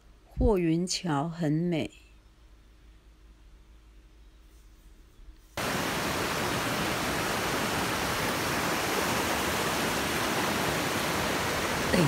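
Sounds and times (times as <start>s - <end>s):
stream rushing over rocks: 5.6s - 12.0s.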